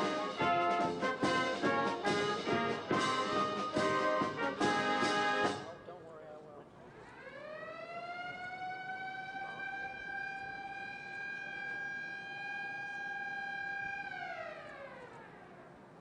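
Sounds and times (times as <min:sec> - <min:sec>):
siren winding: 0:09.8 - 0:16.0.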